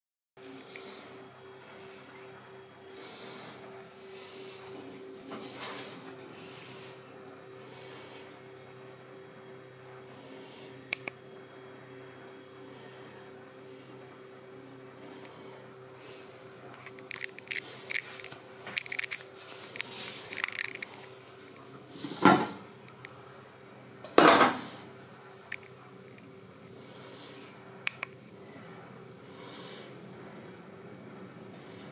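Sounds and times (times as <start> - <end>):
steady low hum: 0.4 - 31.9.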